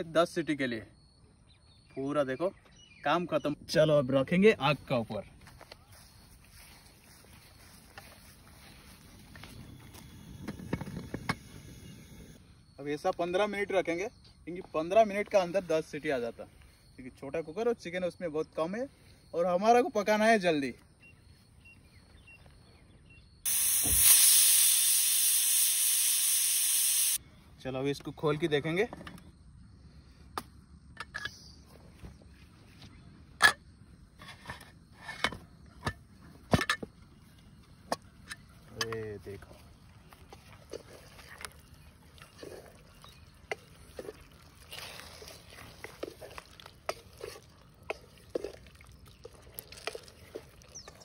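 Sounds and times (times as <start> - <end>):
pressure cooker steam hissing: 23.5 - 27.2
gravy being stirred: 40.0 - 51.0
spatula scraping a metal pot: 42.3 - 48.6.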